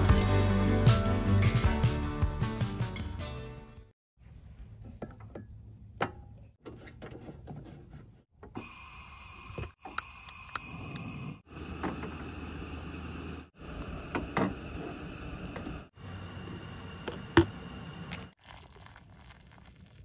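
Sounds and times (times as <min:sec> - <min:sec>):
gas stove hissing: 0:08.5 - 0:18.4.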